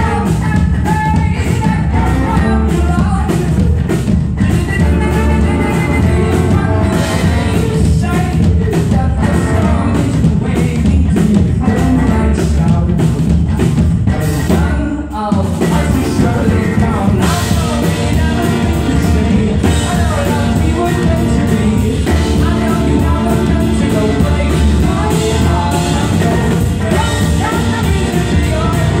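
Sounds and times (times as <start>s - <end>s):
drum kit steady beat: 0.0s - 29.0s
person singing: 0.0s - 29.0s
bowed upright bass: 4.4s - 7.8s, 15.7s - 29.0s
trombone: 4.6s - 7.8s, 15.7s - 29.0s.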